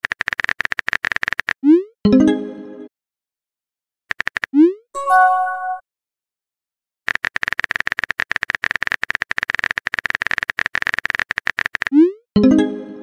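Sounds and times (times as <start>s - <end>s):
rapid keyboard typing clicks: 0.0s - 1.6s, 4.1s - 4.5s, 7.1s - 12.0s
message chime: 5.0s - 5.8s.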